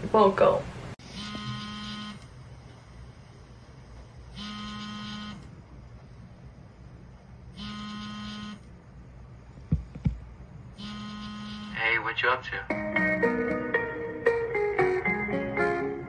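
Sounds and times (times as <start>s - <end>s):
construction machinery warning beeps: 10.8s - 11.8s.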